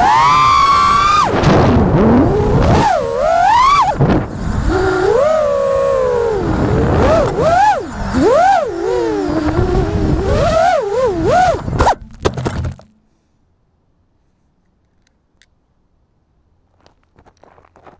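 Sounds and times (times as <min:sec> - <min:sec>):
drone motors whining: 0:00.0 - 0:12.3
knocks and scrapes on gravel: 0:11.7 - 0:13.0, 0:16.7 - 0:17.9.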